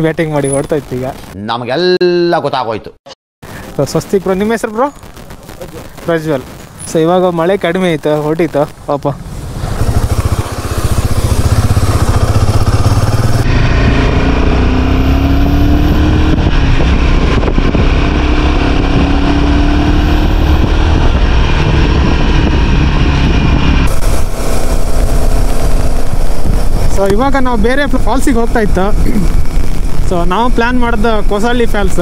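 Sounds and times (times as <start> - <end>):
motorcycle engine running: 9.1 - 32.0.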